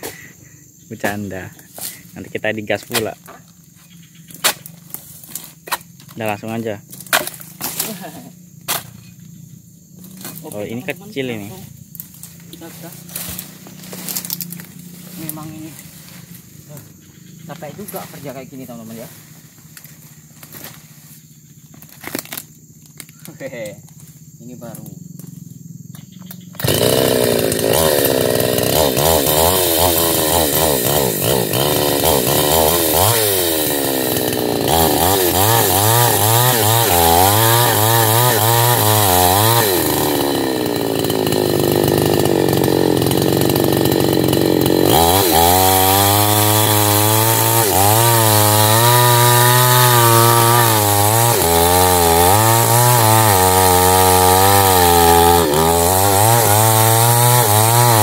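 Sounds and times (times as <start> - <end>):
chainsaw cutting wood: 4.3 - 9.0, 9.9 - 11.2, 11.9 - 16.5, 21.7 - 23.1, 25.0 - 58.0.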